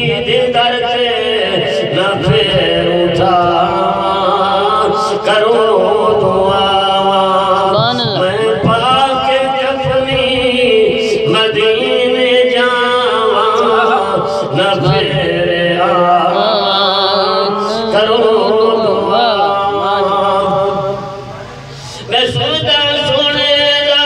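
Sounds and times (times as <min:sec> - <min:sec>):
man singing into microphone: 0:00.0 - 0:21.3, 0:21.9 - 0:24.0
steady held tone: 0:16.1 - 0:22.0.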